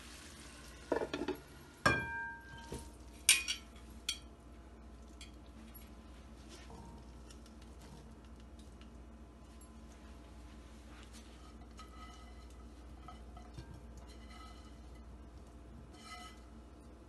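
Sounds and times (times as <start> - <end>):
metal pot clinking on bowl: 0.9 - 4.3.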